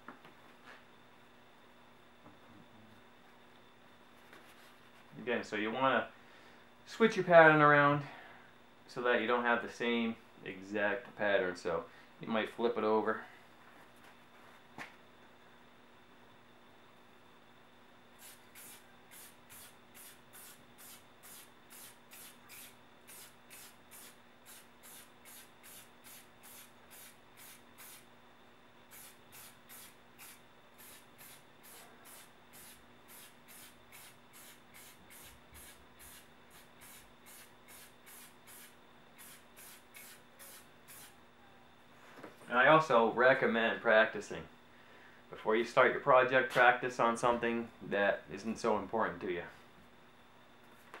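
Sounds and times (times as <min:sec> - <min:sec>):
aerosol spray can hissing: 0:18.2 - 0:28.1, 0:28.9 - 0:41.2.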